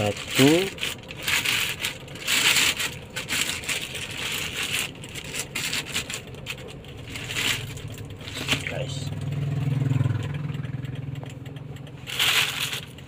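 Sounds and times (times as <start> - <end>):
plastic bag rustling: 0.0 - 9.0, 12.1 - 13.0.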